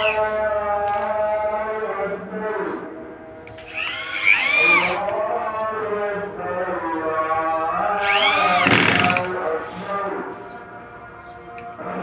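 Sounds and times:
electric drill whirring: 3.6s - 5.0s, 8.0s - 9.3s.

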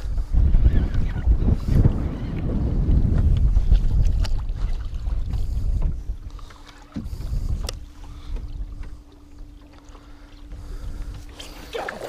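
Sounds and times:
faint steady hum: 0.0s - 12.0s
wind rumbling on microphone: 0.0s - 12.0s.

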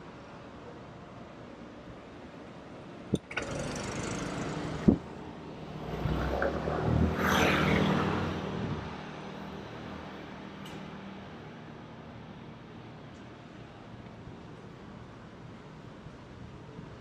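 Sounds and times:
vehicle passing by: 3.6s - 10.1s.

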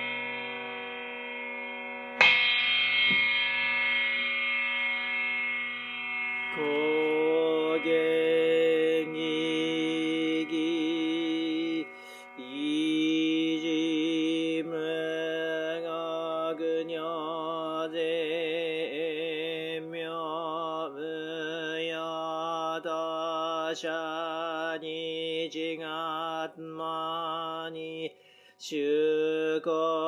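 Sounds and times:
monk chanting: 6.6s - 30.0s.

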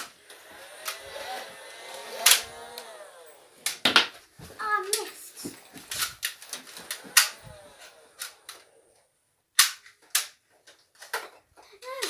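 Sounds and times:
toy blaster shots: 7.0s - 7.5s.

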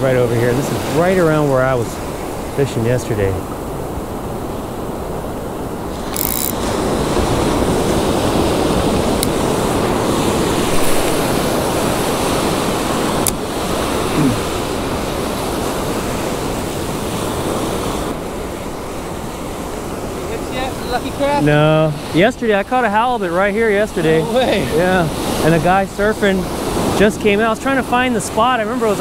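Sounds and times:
ocean surf breaking: 0.0s - 29.0s
wind buffeting microphone: 3.4s - 21.4s
sharp clicks: 6.0s - 6.6s.

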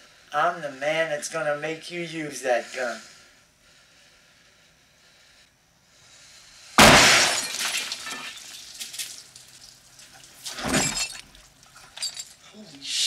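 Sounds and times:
handgun shot: 6.8s - 7.5s
glass shattering: 6.8s - 12.5s
bottles clinking: 6.8s - 12.6s.

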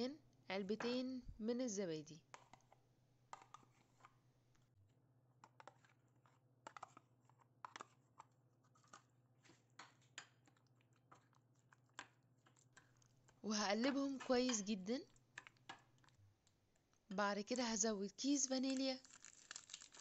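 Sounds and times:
metal spoon scraping plastic cup: 13.7s - 14.8s.

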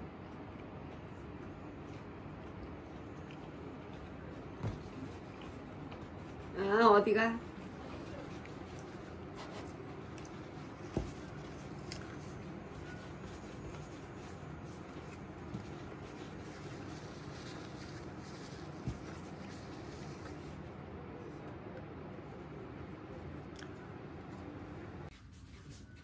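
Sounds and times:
hands rubbing dough on table: 4.6s - 20.7s, 25.1s - 26.0s.

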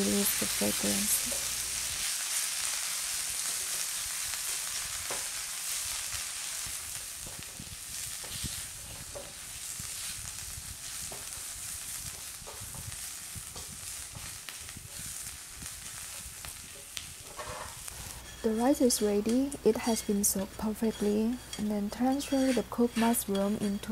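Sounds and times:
mushrooms sizzling in a frying pan: 0.0s - 23.9s
spatula scraping and tapping pan: 7.2s - 10.1s, 11.0s - 11.4s, 12.0s - 15.1s, 15.8s - 23.9s.

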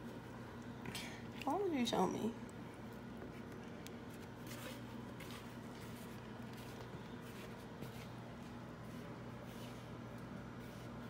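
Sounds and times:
low electrical hum: 0.0s - 11.0s
rustling and handling noises: 2.6s - 11.0s
soft scuffs: 4.4s - 11.0s.

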